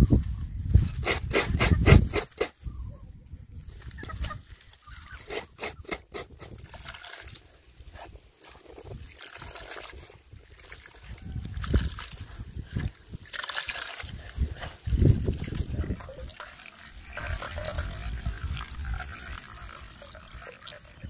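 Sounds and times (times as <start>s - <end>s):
milk trickling: 8.4s - 21.0s.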